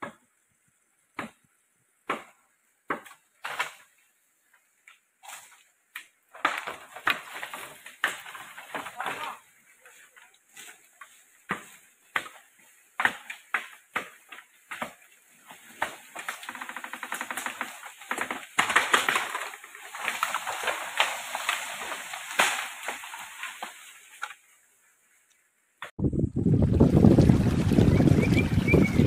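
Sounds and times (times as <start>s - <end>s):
bamboo crashing through leaves: 2.1s - 4.0s, 6.3s - 24.4s.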